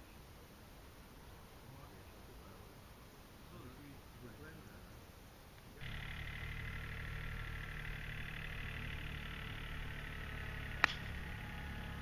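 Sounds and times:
golf club striking ball: 0:05.8 - 0:11.7.

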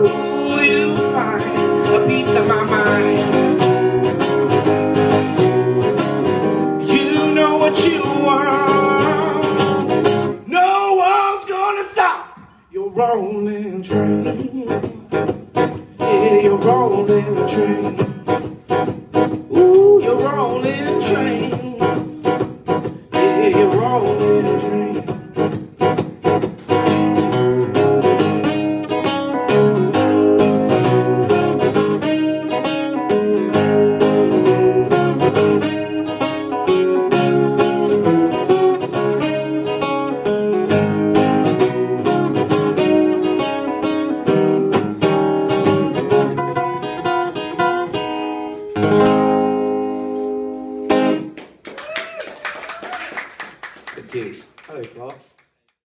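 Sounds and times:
man singing wordlessly: 0:00.0 - 0:03.9, 0:06.7 - 0:15.4, 0:16.0 - 0:18.4, 0:19.4 - 0:22.5, 0:23.1 - 0:25.4, 0:41.2 - 0:42.5
acoustic guitar strummed blues: 0:00.0 - 0:51.4.

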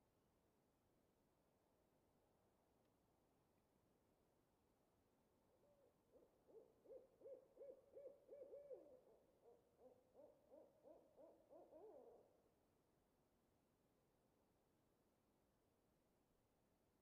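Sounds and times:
owl hooting: 0:05.6 - 0:12.3.

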